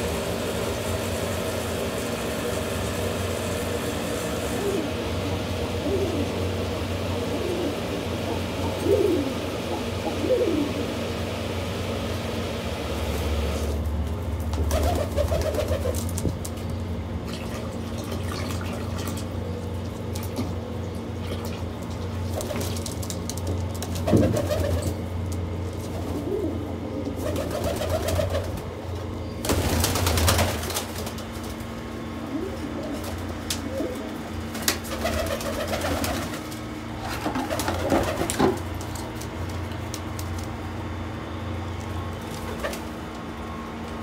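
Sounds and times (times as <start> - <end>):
steady low hum: 0.0 - 44.0
pigeons cooing: 4.2 - 12.0, 14.6 - 16.2, 24.0 - 30.6, 31.2 - 38.8
bird wings flapping: 14.5 - 16.6, 22.2 - 24.9, 27.2 - 28.7, 29.4 - 31.7, 34.5 - 40.5, 42.2 - 43.0.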